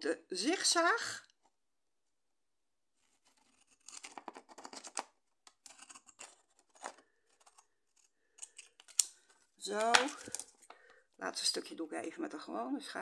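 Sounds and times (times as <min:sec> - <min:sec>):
scissors snipping paper: 0:03.4 - 0:09.2.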